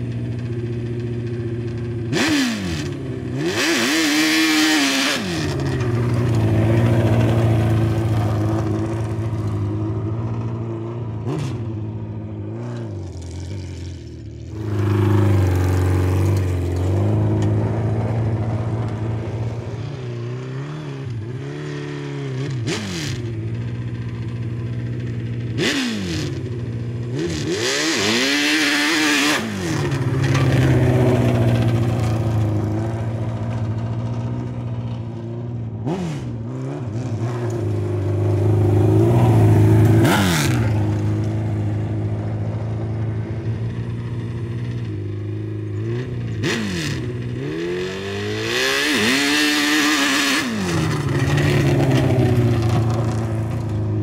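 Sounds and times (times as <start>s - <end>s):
motorcycle engine revving: 0.0s - 54.0s.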